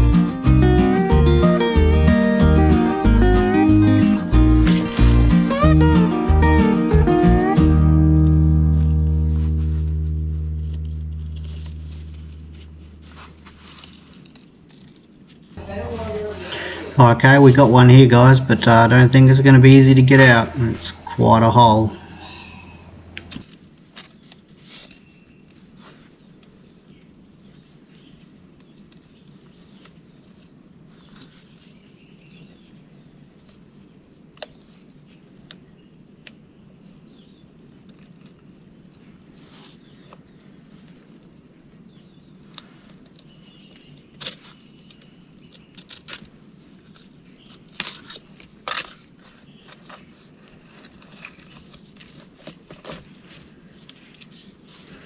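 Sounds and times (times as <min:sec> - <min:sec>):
high insect drone: 0:00.0 - 0:55.0.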